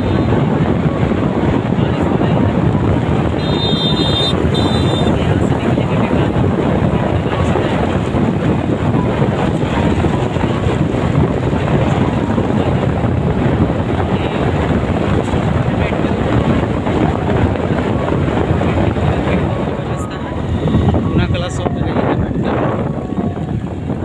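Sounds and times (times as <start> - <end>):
road noise: 0.0 - 24.0
wind buffeting microphone: 0.0 - 24.0
motorcycle engine: 2.7 - 15.3.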